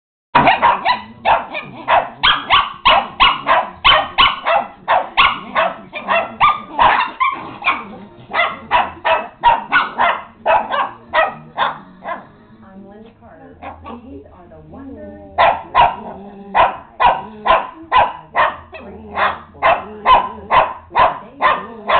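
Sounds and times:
small dog yapping: 0.4 - 12.2.

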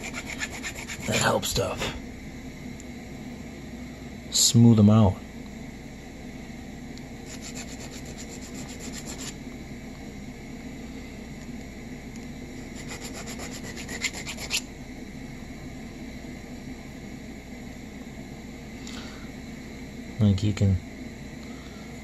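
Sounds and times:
hand file rasping on metal threads: 0.0 - 1.2, 12.8 - 14.6.

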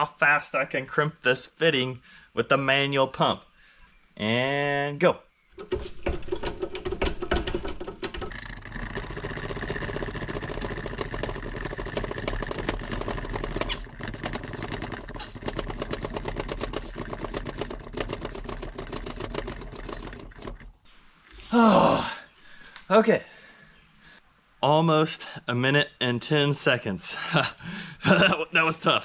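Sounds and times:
hand pump mechanical clatter: 7.4 - 20.9.

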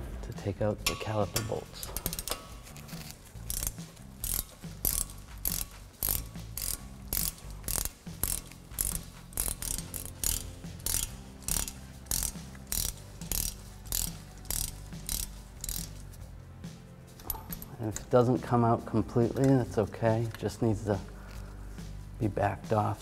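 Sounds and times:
ratchet pawl clicking: 1.8 - 16.1.

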